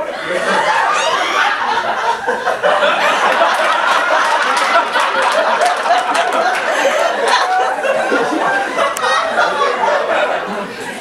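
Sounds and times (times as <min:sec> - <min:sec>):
audience laughing: 0:00.0 - 0:11.0
sharp claps: 0:03.3 - 0:06.7.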